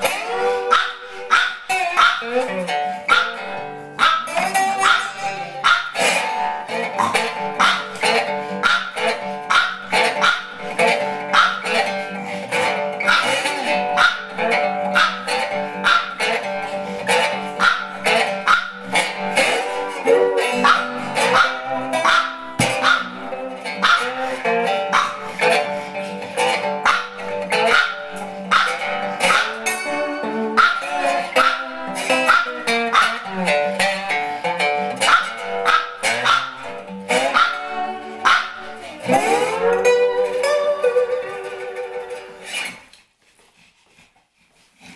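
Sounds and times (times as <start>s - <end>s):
dog barking: 0.0s - 6.4s, 7.0s - 12.0s, 12.6s - 25.7s, 26.8s - 30.0s, 30.6s - 33.3s, 35.0s - 39.7s
slide blues resonator guitar: 0.0s - 43.0s.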